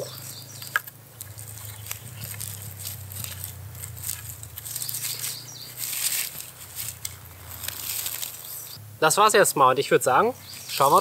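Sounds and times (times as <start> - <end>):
wooden sticks clicking: 0.0 - 8.4
cord rustling: 0.0 - 8.8, 10.4 - 11.0.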